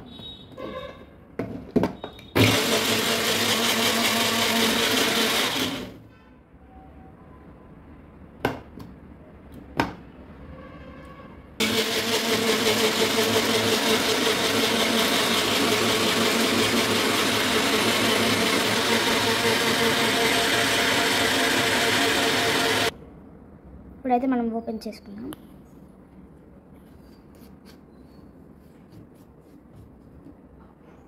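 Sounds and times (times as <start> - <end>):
blender motor running: 2.4 - 6.0, 11.6 - 22.9.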